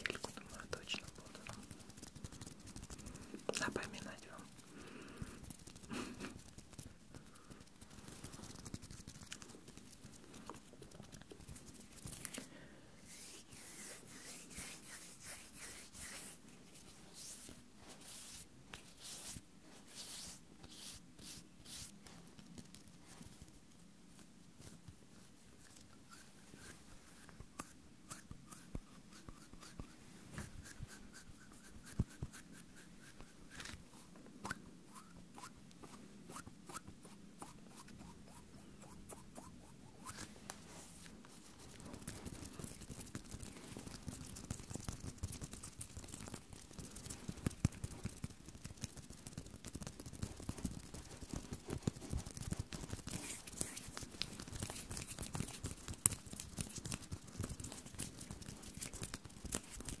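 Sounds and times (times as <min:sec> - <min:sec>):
hands rubbing together: 0:00.0 - 0:04.6, 0:13.0 - 0:22.1, 0:39.4 - 1:00.0.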